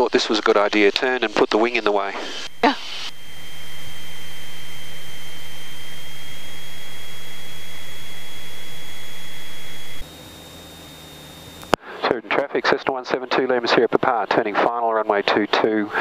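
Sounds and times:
thin high whine: 0:00.0 - 0:12.4
light aircraft engine drone: 0:03.2 - 0:12.2.

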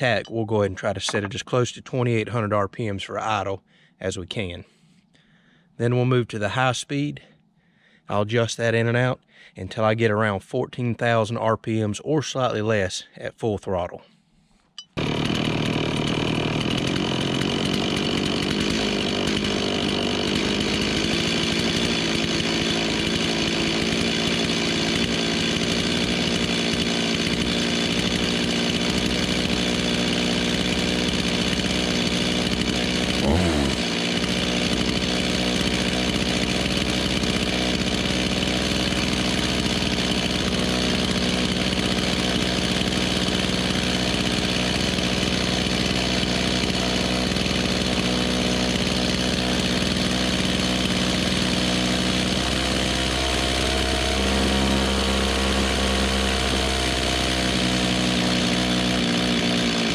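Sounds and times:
chainsaw idling: 0:00.0 - 0:01.4, 0:14.9 - 0:59.9.

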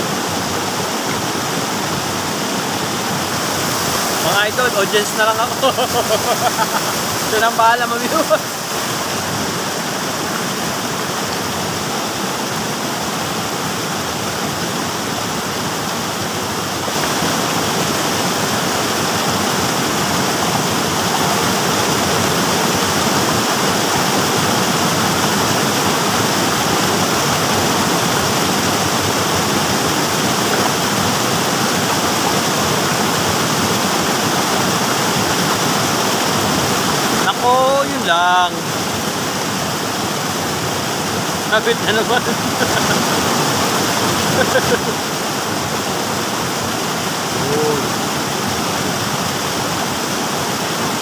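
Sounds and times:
stream rushing over stones: 0:00.0 - 0:51.0.

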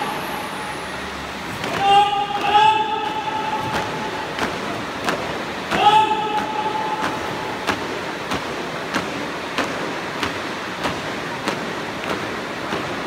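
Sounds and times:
large hall noise: 0:00.0 - 0:13.0
shouted drill command: 0:01.6 - 0:04.2, 0:05.7 - 0:07.5.

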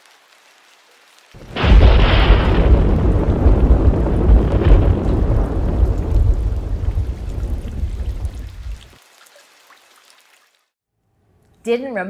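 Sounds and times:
thunder crack and rumble: 0:01.4 - 0:08.9.

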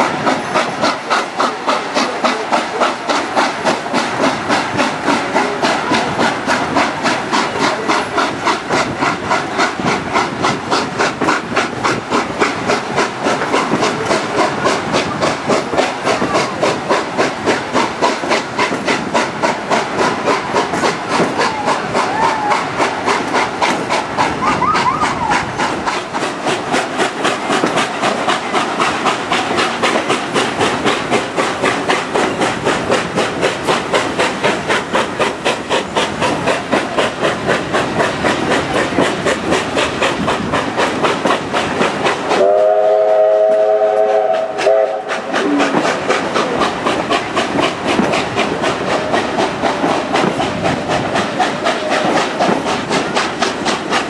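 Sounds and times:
carriages rumbling on rails: 0:00.0 - 0:54.0
steam locomotive exhaust beats: 0:00.0 - 0:54.0
steam whistle blast: 0:42.4 - 0:45.7.

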